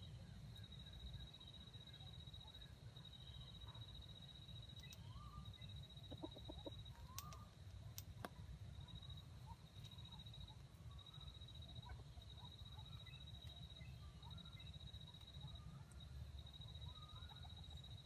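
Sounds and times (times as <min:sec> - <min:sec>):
chicken clucking: 0:06.0 - 0:07.2.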